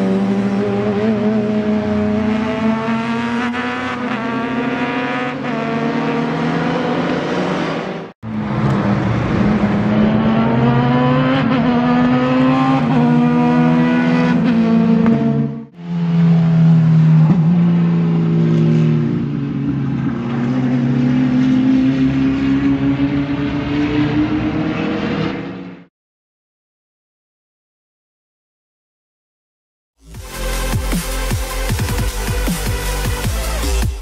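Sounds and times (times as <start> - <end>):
engine running at high revs: 0.0 - 25.9.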